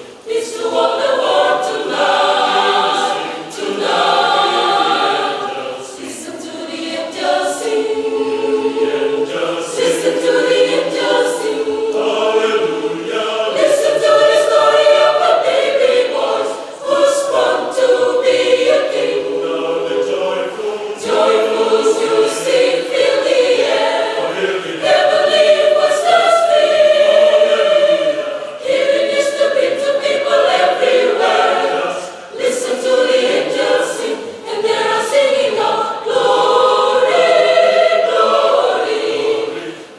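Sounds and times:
mixed choir singing in harmony: 0.0 - 39.9.

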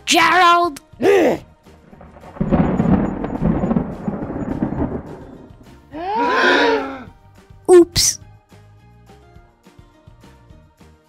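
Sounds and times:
thunderclap rumbling: 1.8 - 5.9.

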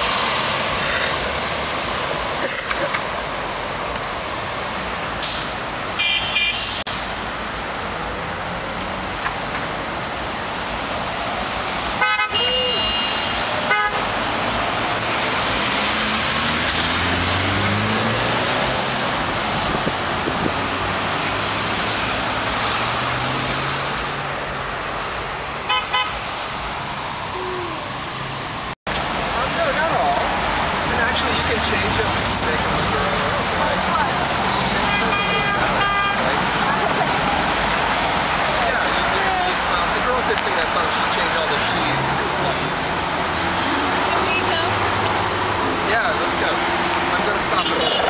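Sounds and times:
road traffic passing: 0.0 - 48.0
car horn toots: 6.0 - 6.7, 12.0 - 14.1, 25.7 - 26.2, 34.8 - 36.3, 47.6 - 48.0.

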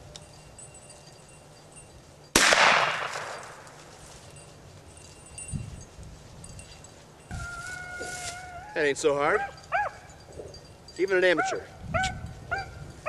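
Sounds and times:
shotgun shot echoing: 2.4 - 3.7.

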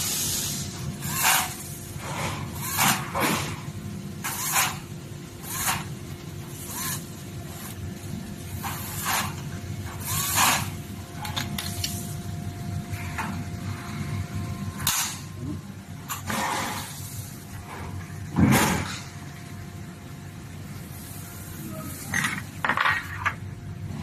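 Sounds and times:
steady hum: 0.0 - 24.0.

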